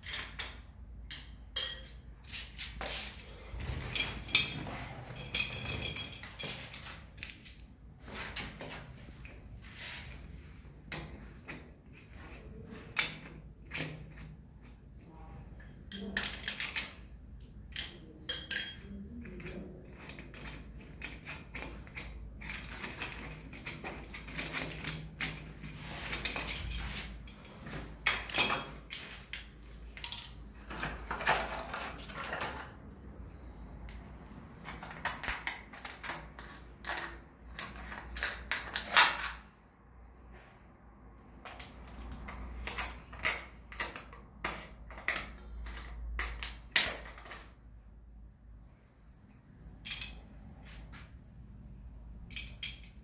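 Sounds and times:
metal clicks and clinks: 0.0s - 2.1s, 3.8s - 7.6s, 15.6s - 30.8s, 41.4s - 47.6s, 49.8s - 50.3s, 52.2s - 53.0s.

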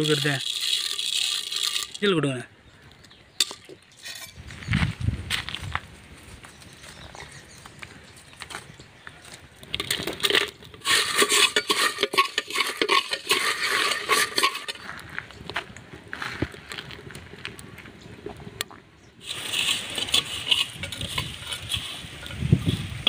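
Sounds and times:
dry spices rattling into a pot: 0.0s - 2.4s, 9.8s - 15.1s, 19.2s - 23.0s.

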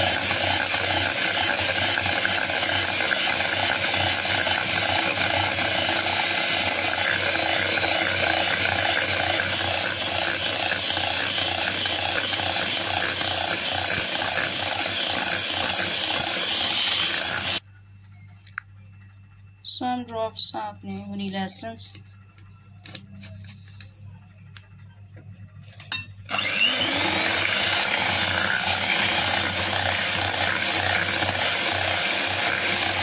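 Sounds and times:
electric hand mixer whisking: 0.0s - 17.6s, 26.3s - 33.0s.

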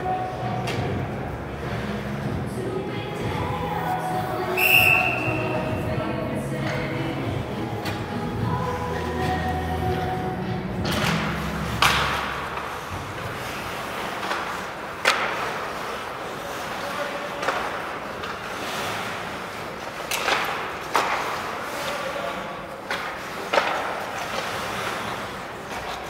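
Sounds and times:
rink music: 0.0s - 13.4s
skates scraping on ice: 0.0s - 26.0s
hockey sticks cracking on puck: 10.6s - 26.0s
puck hitting boards: 10.8s - 16.1s, 17.3s - 19.0s, 20.0s - 22.0s, 22.8s - 26.0s.

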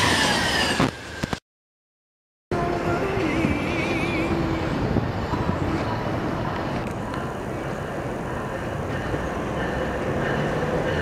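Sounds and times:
train wheels rumbling on rails: 2.6s - 11.0s.

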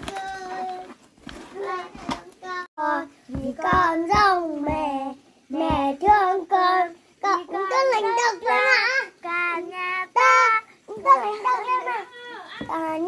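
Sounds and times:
child singing: 0.0s - 0.9s, 1.6s - 13.0s.

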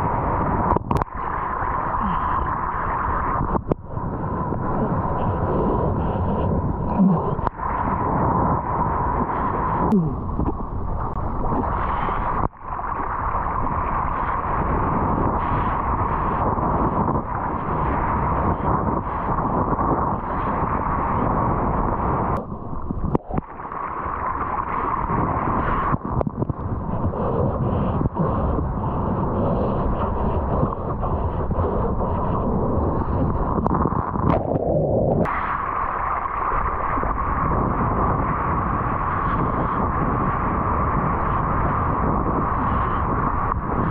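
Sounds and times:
wind noise: 0.0s - 43.9s
rushing water: 6.2s - 28.8s.

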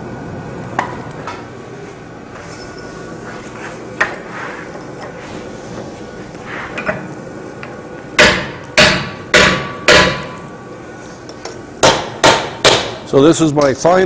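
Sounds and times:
hammer striking steel: 8.2s - 10.4s, 11.8s - 13.0s.

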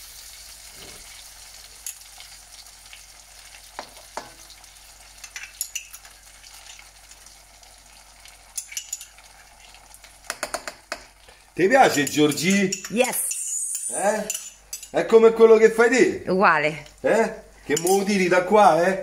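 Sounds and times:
chicken sizzling in frying pan: 0.0s - 15.0s
spoon clicks: 12.0s - 15.0s.

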